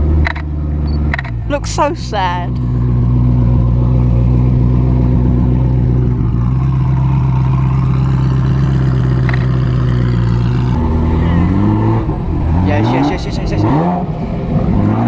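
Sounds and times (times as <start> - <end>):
sports car engine low drone: 0.0 - 15.0.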